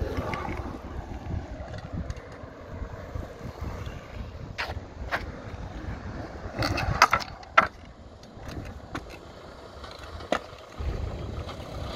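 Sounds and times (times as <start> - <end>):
scooter clacking on ground: 0.0 - 2.6, 6.4 - 11.9
scooter wheels rolling on asphalt: 0.0 - 11.9.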